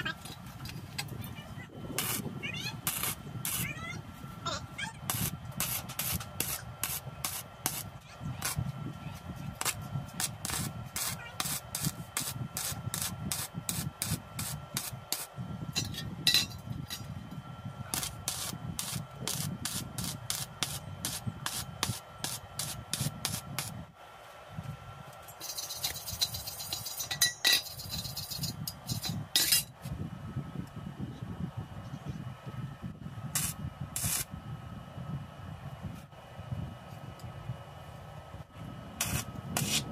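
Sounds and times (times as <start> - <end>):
welding arc crackling: 1.8 - 4.0, 4.8 - 17.0, 17.8 - 23.9, 25.4 - 29.7, 33.3 - 34.3, 39.0 - 39.9.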